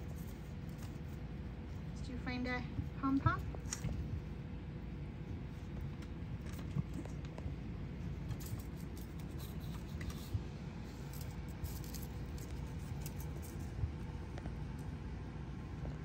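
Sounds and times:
low background rumble: 0.0 - 16.0
kittens' paws scrabbling on tile: 5.4 - 14.8.

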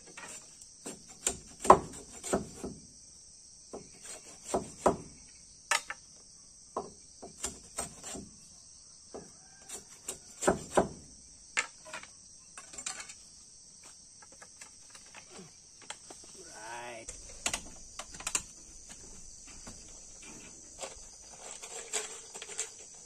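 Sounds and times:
crickets and insects chirping: 0.0 - 23.0
knife chopping bamboo: 0.9 - 2.8, 3.7 - 5.1, 6.8 - 8.2, 9.7 - 11.0.

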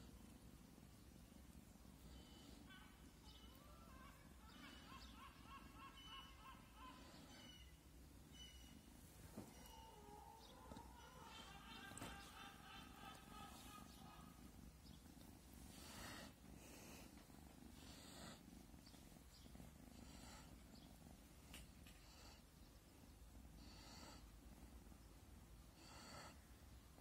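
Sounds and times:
soft hissy sounds: 0.0 - 4.9, 6.6 - 27.0
kitten purring: 7.4 - 27.0.

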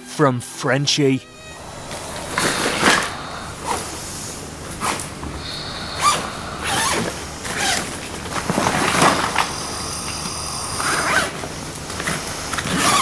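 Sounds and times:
bag zips rasping: 1.5 - 9.5, 10.8 - 11.4, 12.6 - 13.0
rustling of bags: 1.6 - 13.0.

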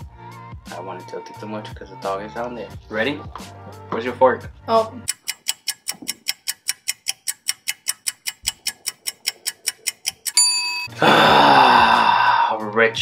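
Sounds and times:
fast clock ticking: 5.1 - 10.9
short ringing tone: 10.4 - 10.9.

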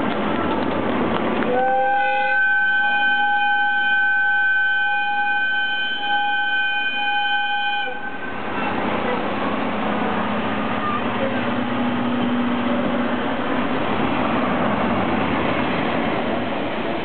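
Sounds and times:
train and platform noise: 0.0 - 17.0
locomotive whistle blast: 1.5 - 8.7.

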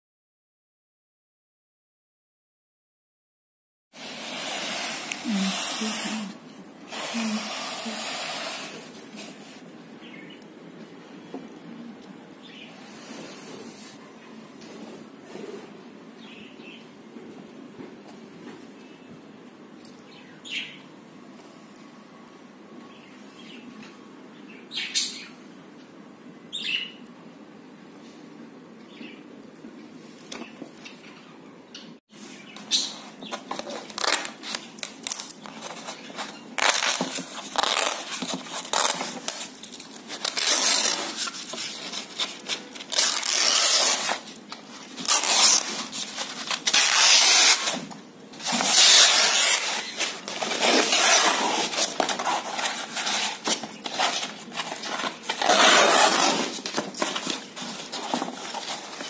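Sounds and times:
canvas tearing: 36.6 - 39.5, 40.1 - 44.3, 44.9 - 47.8, 48.4 - 58.9.

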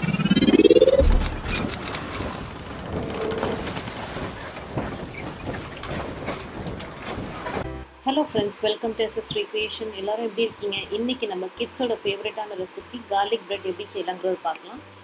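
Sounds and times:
rising whoosh: 0.0 - 2.0.

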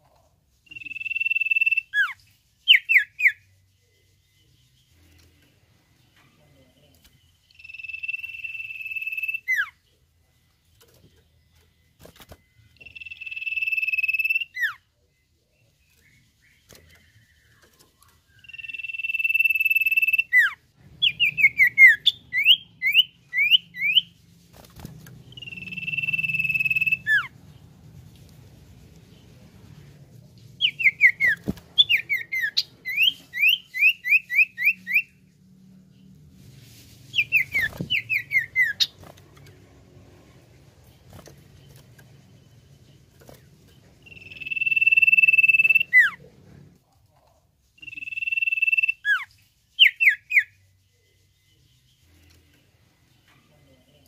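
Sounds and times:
bird whistling song: 0.6 - 4.8, 7.5 - 9.8, 12.2 - 14.8, 18.2 - 24.2, 25.3 - 27.3, 30.6 - 35.2, 37.1 - 39.0, 44.0 - 46.2, 47.8 - 50.6.

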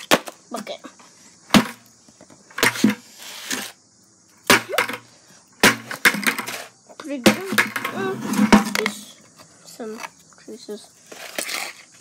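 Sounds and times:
bucket banging on cardboard box: 1.5 - 1.8, 2.6 - 3.0, 5.6 - 6.6, 7.2 - 9.0.

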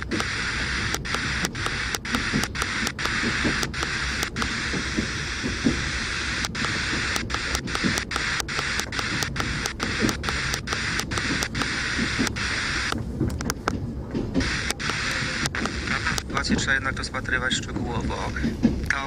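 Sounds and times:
radio static hissing: 0.0 - 19.0.

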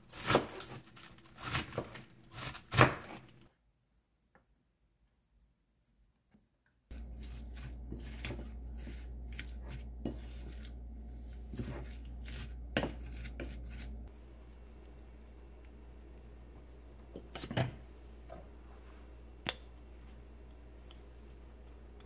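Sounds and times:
wooden spoon stirring batter: 6.9 - 15.8.

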